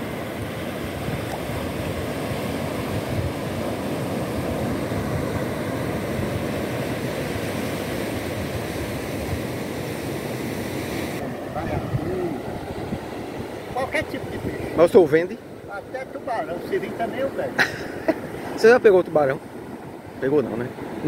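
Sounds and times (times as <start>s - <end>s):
surf washing up a beach: 0.0s - 21.0s.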